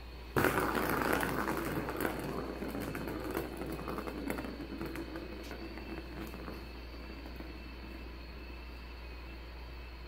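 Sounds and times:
plastic ball rolling on track: 0.3s - 9.4s.

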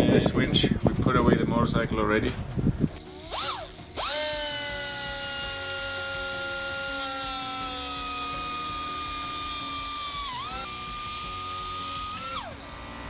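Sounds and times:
pneumatic cut-off tool whining: 3.0s - 13.0s.

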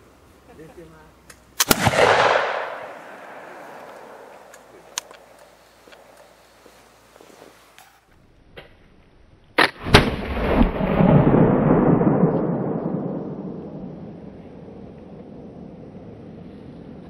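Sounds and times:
rifle shot with rolling echo: 1.6s - 6.2s, 9.6s - 15.6s
flintlock lock crack: 3.8s - 6.0s.

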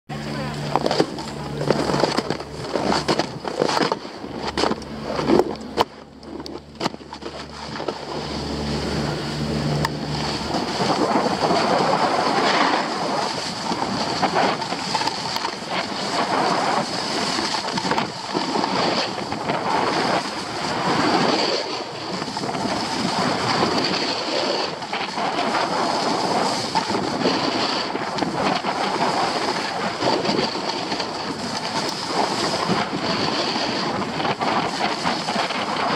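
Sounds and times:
low steady hum: 0.1s - 24.3s
wind rushing on microphone: 0.1s - 35.9s
snowboard scraping on snow: 0.8s - 35.9s.

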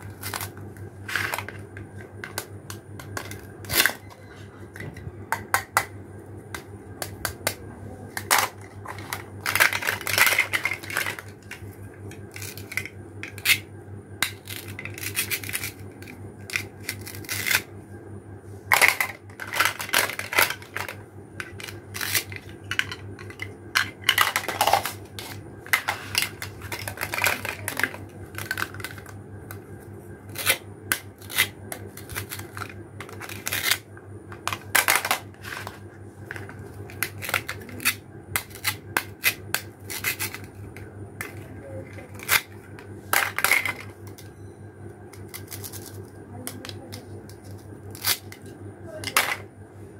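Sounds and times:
plastic toys clicking and clacking: 7.4s - 11.6s, 18.7s - 29.1s, 34.4s - 40.5s, 41.2s - 44.3s.

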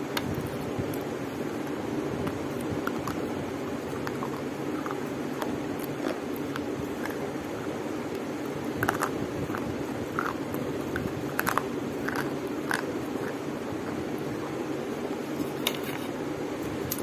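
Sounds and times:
chalk crunching while chewed: 2.2s - 7.2s, 8.1s - 13.4s.

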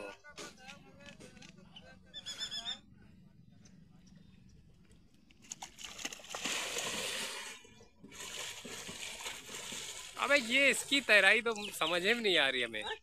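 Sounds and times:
swimmer splashing water: 5.4s - 11.9s.

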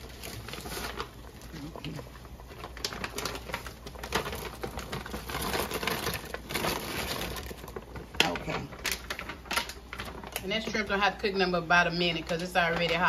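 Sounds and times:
plastic bag crinkling: 0.0s - 13.0s
crackly clicks: 1.8s - 10.7s.

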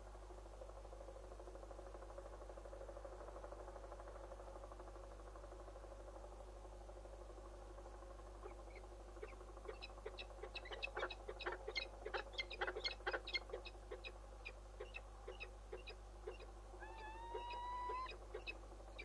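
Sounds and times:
falcon chipping calls: 9.2s - 19.0s.

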